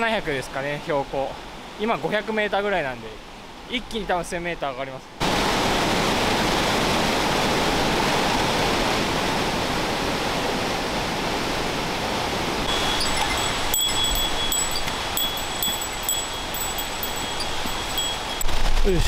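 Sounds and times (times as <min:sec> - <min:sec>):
waterfall rushing: 0:12.7 - 0:18.4
bell jingling: 0:12.7 - 0:18.5.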